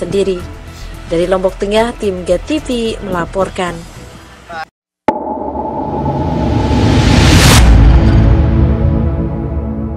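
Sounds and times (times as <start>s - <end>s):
rising whoosh: 5.1s - 9.2s.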